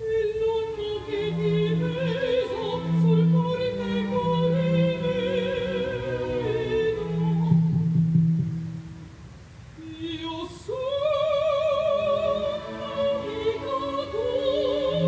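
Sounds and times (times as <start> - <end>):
woman singing opera: 0.0 - 8.0, 9.8 - 15.0
orchestra: 0.0 - 15.0
low strings long notes: 1.0 - 9.3.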